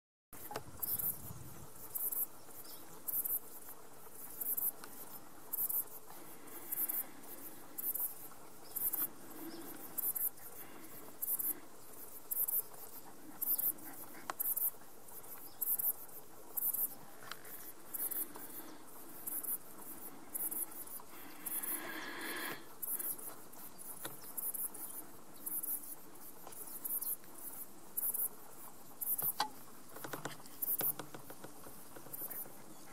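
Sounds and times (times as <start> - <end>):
faint outdoor background: 0.3 - 32.9
insect chirping: 0.4 - 32.9.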